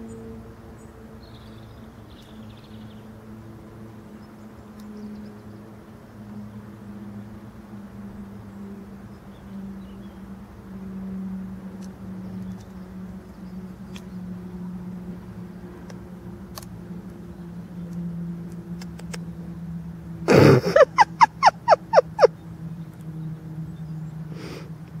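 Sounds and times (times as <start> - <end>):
short falling animal calls: 20.3 - 22.3.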